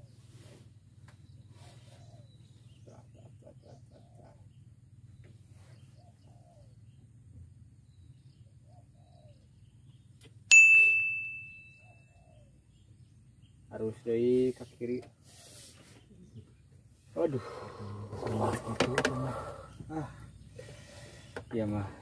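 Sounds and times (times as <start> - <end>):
faint bird chirps: 0.0 - 22.0
bright bell-like ding: 10.5 - 12.1.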